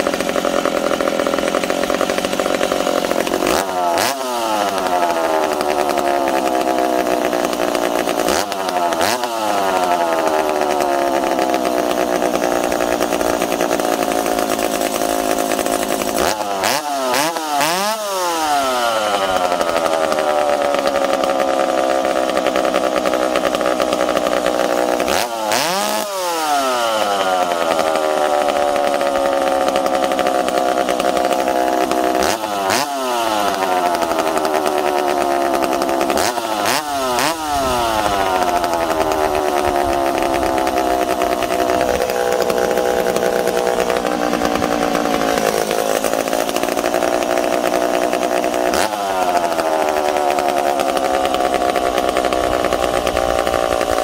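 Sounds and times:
chainsaw engine revving: 0.0 - 54.0.

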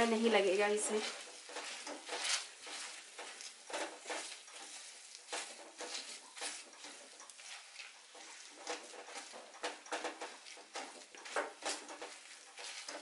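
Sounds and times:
potato masher mashing soft food: 0.0 - 13.0.

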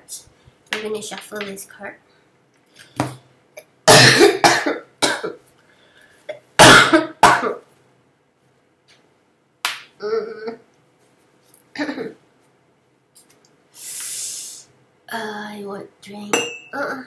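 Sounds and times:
woman coughing: 3.9 - 5.4, 6.6 - 7.6, 11.8 - 12.2.

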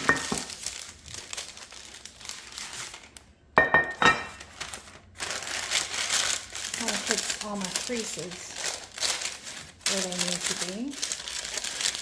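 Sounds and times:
parchment paper crinkling: 0.0 - 3.4, 4.3 - 12.0
pan knocking on stone counter: 3.6 - 4.3.

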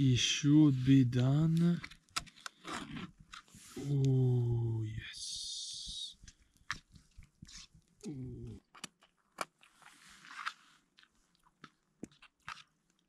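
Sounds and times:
person humming mm: 3.7 - 6.1, 8.0 - 8.6
chewing: 6.2 - 13.0.

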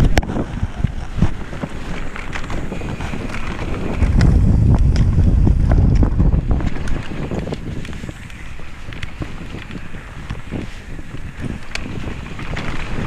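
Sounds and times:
bike rattling over roots: 0.0 - 13.0
wind buffeting microphone: 0.0 - 13.0
tyres rumbling on dirt: 2.6 - 7.4.

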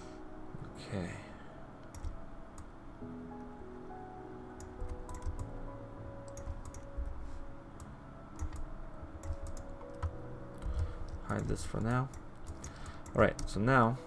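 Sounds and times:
ambient music with held notes: 0.0 - 14.0.

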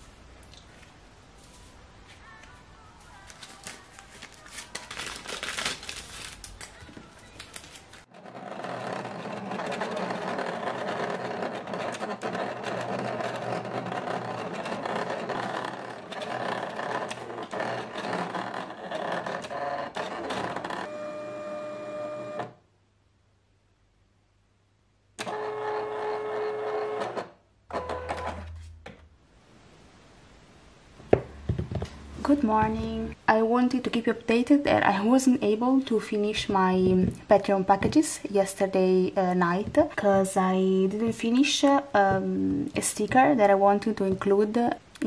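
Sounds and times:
cutting machine motors whirring: 8.5 - 22.5.

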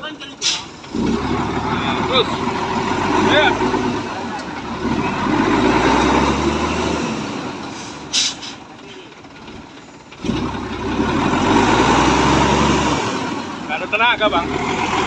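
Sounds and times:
truck diesel engine revving: 0.0 - 15.0
air brake hiss: 0.4 - 0.8, 7.7 - 8.7.

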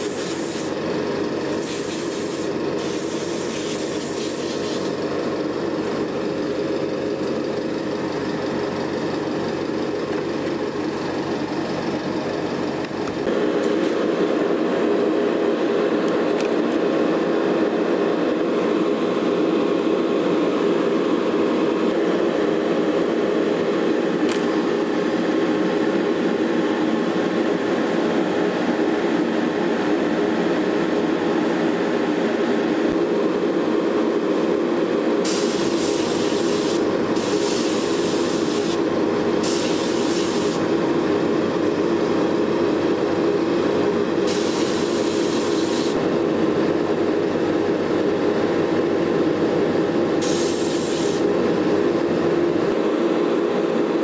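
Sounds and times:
airbrush spraying hisses: 0.0 - 0.8, 1.5 - 5.0, 35.2 - 38.8, 39.4 - 40.6, 44.3 - 46.0, 50.2 - 51.3.

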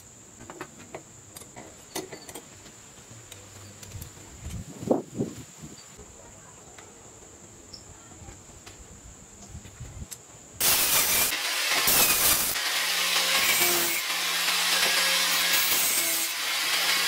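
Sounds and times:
angle grinder cutting metal: 10.6 - 17.0.

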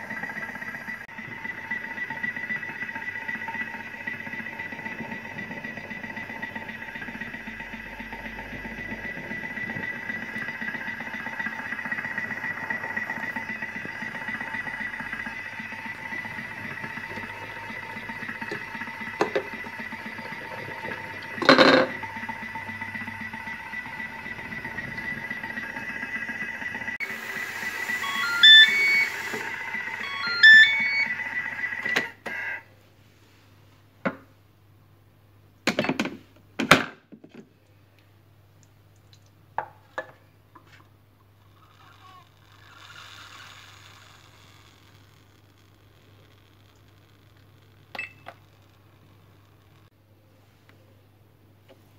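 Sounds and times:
food processor motor humming: 0.0 - 32.2, 41.5 - 47.1.

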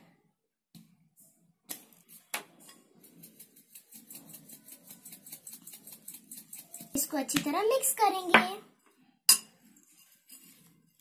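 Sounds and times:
salt shaker ticking: 3.0 - 7.2.

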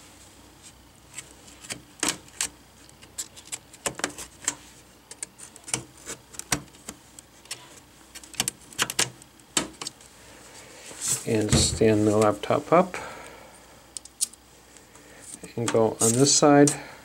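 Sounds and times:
plastic clips snapping loose: 8.2 - 10.0.

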